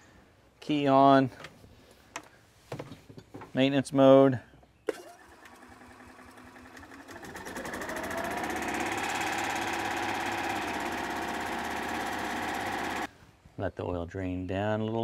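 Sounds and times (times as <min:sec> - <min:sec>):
small engine running: 0:05.0 - 0:13.1.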